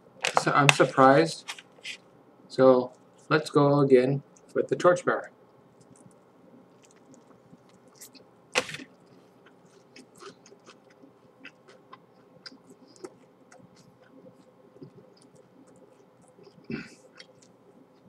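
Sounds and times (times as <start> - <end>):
person chewing crispy food: 5.8 - 18.0.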